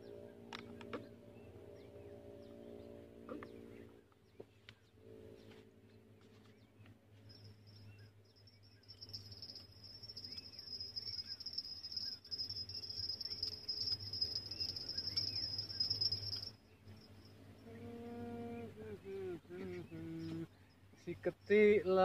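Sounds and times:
insect trilling: 0:08.4 - 0:18.9.

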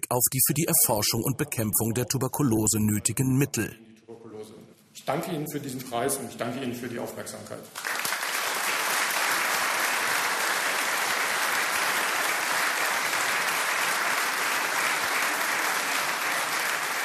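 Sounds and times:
audience applauding: 0:07.8 - 0:17.0.

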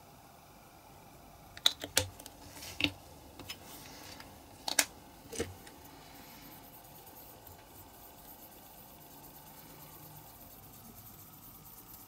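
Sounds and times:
plastic items clicking on cutting mat: 0:01.6 - 0:03.6, 0:04.2 - 0:05.8.

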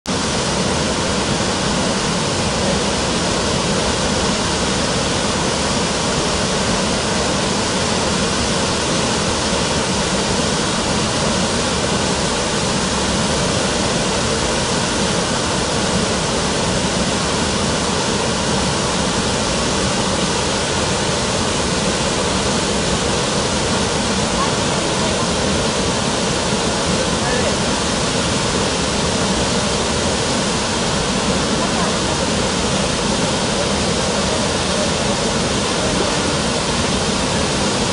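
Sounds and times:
waterfall rushing over rocks: 0:00.1 - 0:37.9.

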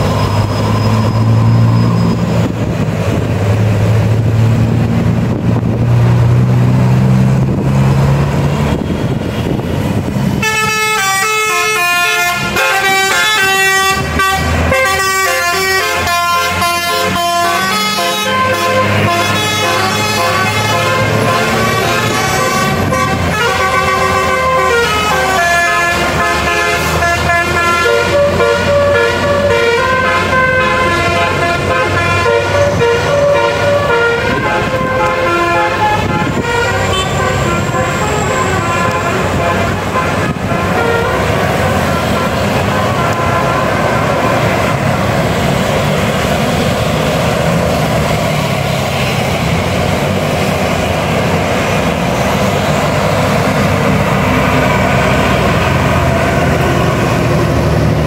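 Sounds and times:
bus engine running: 0:00.0 - 0:58.0
musical air horn tune: 0:10.4 - 0:44.8.

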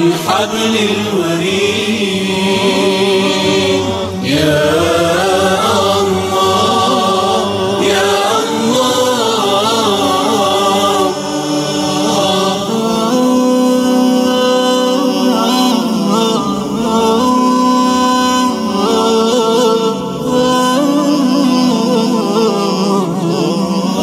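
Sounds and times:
a cappella voices singing: 0:00.0 - 0:24.0.

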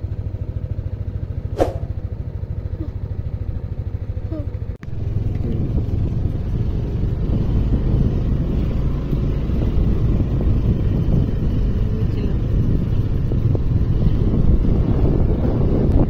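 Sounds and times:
rough low rumble: 0:00.2 - 0:16.0.

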